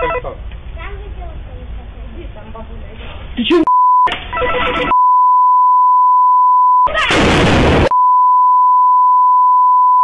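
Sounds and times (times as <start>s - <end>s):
censor bleep tone: 3.7s - 4.1s, 4.9s - 6.9s, 7.9s - 10.0s.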